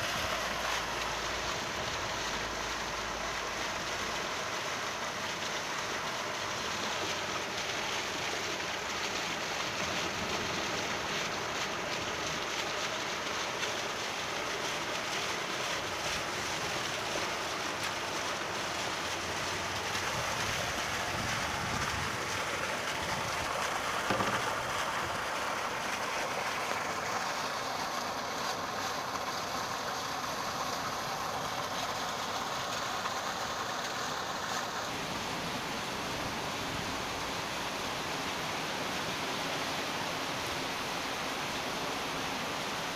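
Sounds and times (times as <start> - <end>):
heavy rain falling: 5.4 - 27.6, 32.9 - 42.9.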